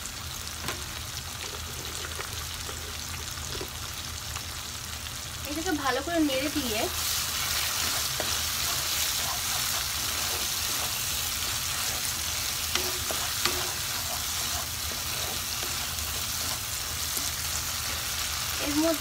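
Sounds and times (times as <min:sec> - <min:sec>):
paste sizzling in a pan: 0:00.0 - 0:19.0
spatula scraping a pan: 0:06.9 - 0:19.0.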